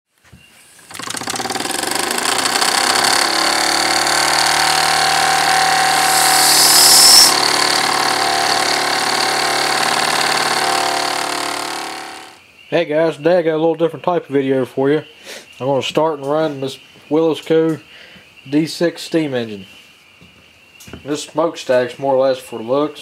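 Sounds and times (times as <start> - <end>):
model steam engine chuffing: 0.9 - 12.4
high steam whistle: 5.0 - 7.9.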